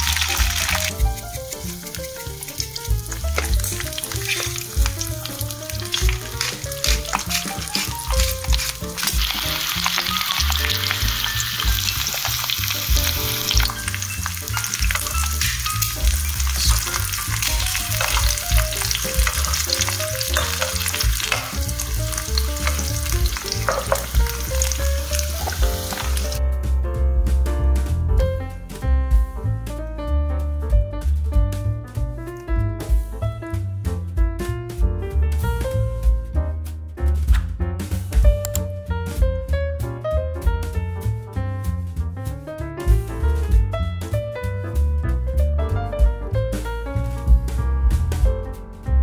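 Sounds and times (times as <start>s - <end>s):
food sizzling in a pan: 0.0s - 26.4s
metal spoon scraping a pan: 1.5s - 12.6s, 13.3s - 24.8s.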